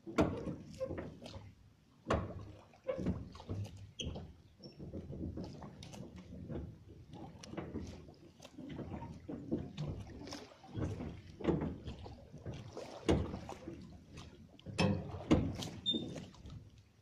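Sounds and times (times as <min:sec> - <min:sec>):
wet net rustling and splashing: 0:07.1 - 0:16.7.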